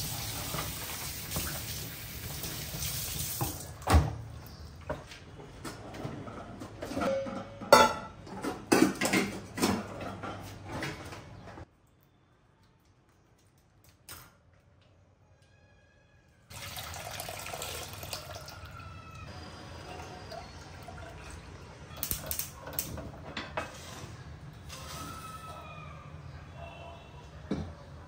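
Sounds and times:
milk pouring into metal pot: 16.5s - 18.9s.

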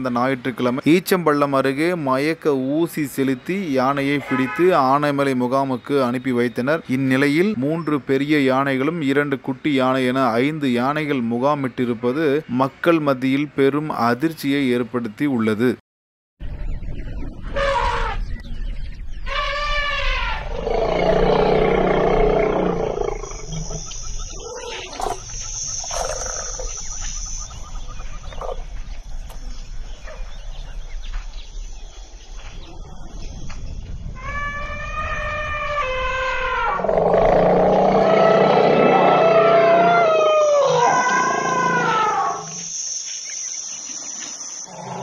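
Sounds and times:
elephants trumpeting: 4.2s - 4.8s, 17.5s - 18.2s, 19.3s - 23.8s, 34.2s - 42.6s
elephant roaring: 19.4s - 23.8s, 34.2s - 42.6s.

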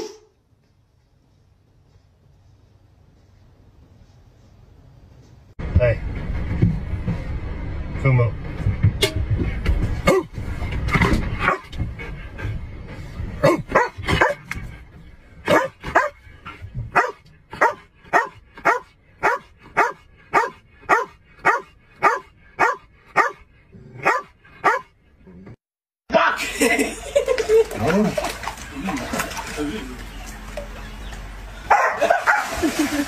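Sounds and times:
dog barking: 11.4s - 11.7s, 13.4s - 14.4s, 15.5s - 16.2s, 16.9s - 23.4s, 24.0s - 24.9s, 31.7s - 32.5s.

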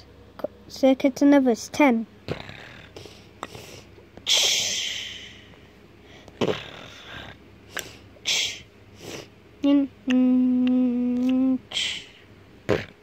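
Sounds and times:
person breathing close to microphone: 2.8s - 9.3s, 11.7s - 12.3s.

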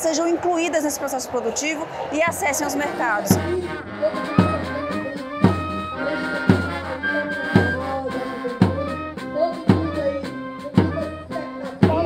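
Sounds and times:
instrumental music: 2.8s - 12.0s.

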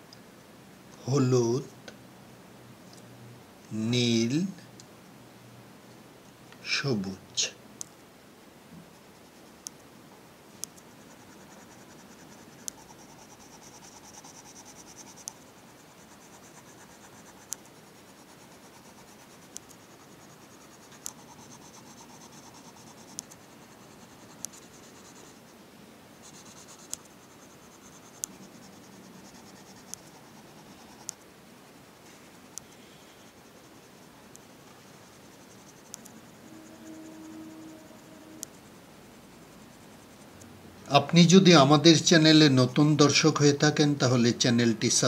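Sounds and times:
pencil scratching on paper: 10.9s - 25.5s, 26.2s - 31.2s, 33.2s - 38.8s.

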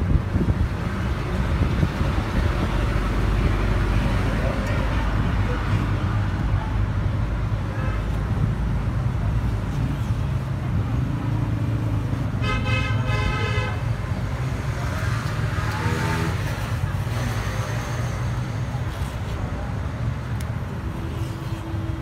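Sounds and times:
road traffic rumble: 0.0s - 22.0s
vehicle horn: 12.4s - 13.8s.

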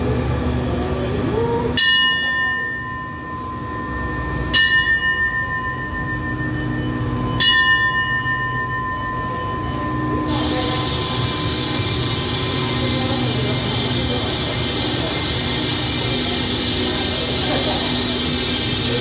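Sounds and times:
station bell ringing: 1.7s - 19.0s
train pulling away hiss: 7.8s - 19.0s.

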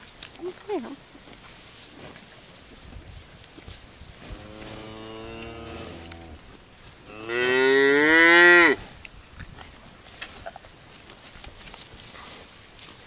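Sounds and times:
cow mooing: 4.4s - 6.4s, 7.1s - 8.8s.

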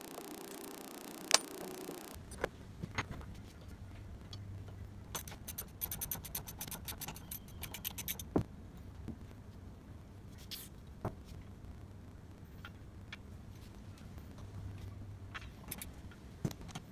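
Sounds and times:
socket ratchet clicking: 5.2s - 8.3s.

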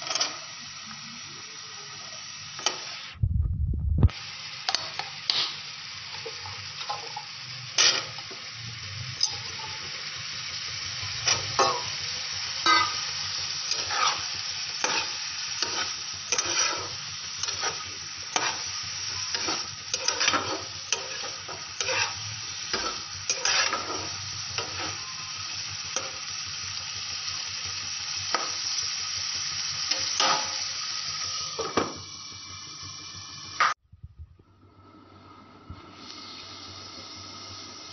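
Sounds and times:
vegetables sizzling in a pan: 0.0s - 3.2s, 4.1s - 33.8s, 35.1s - 37.9s
metal spatula scraping a pan: 6.4s - 8.2s, 12.6s - 13.1s, 13.7s - 25.2s.

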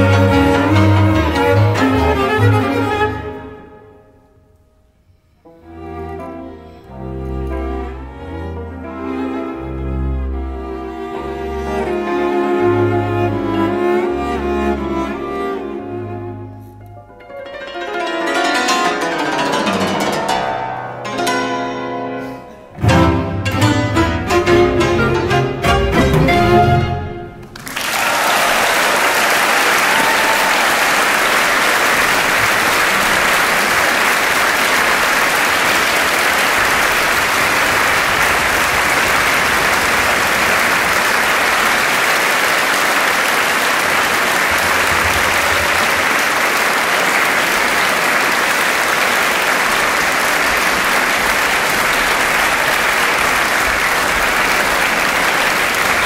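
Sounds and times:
audience applauding: 27.4s - 56.0s.

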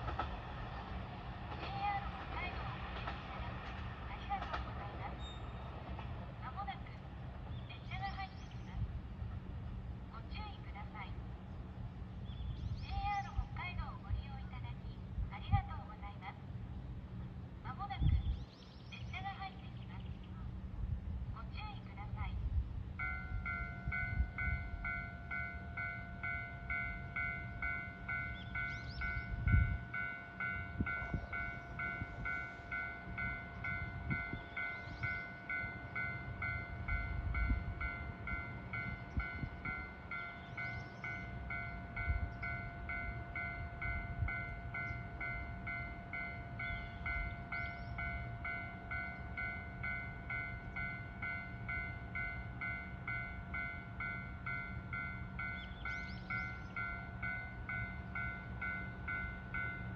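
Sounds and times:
electronic railway warning bell: 23.0s - 59.9s.

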